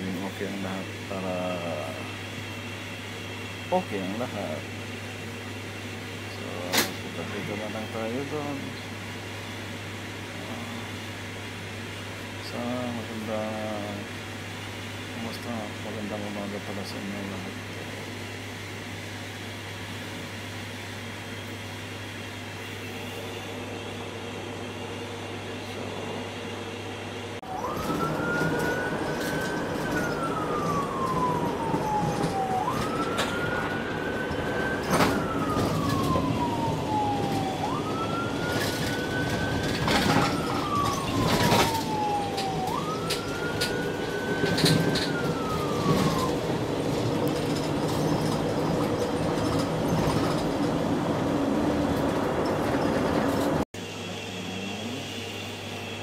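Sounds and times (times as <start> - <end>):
ambulance siren wailing: 3.7 - 4.6, 27.4 - 53.6
vehicle hum: 22.3 - 55.3.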